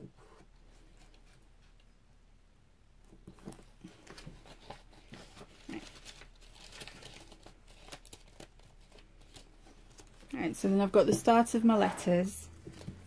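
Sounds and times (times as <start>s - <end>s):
book pages rustling: 3.1s - 10.4s, 11.0s - 13.0s.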